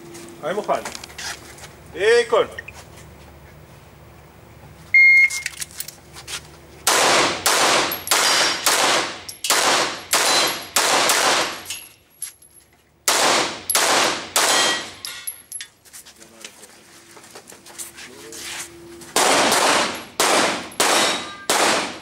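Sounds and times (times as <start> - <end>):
shot timer beep: 5.0 - 5.5
pistol shots echoing indoors: 6.9 - 11.6, 13.1 - 14.9, 19.2 - 22.0.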